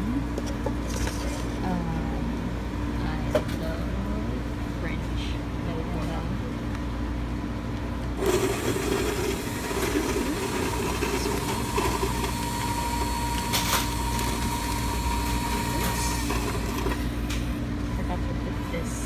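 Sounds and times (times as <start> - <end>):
coffee machine whirring: 7.8 - 19.0.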